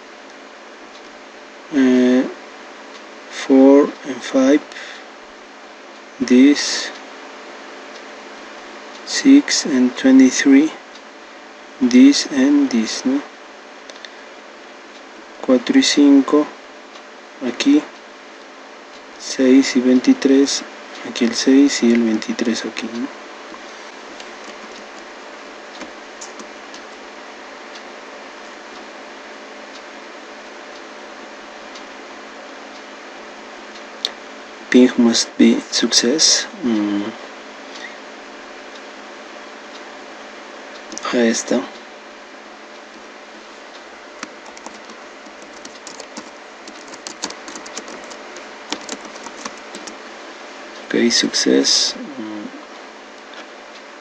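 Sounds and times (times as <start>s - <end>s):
microphone hiss: 0.0s - 54.0s
computer keyboard typing: 25.8s - 26.5s, 44.2s - 50.0s.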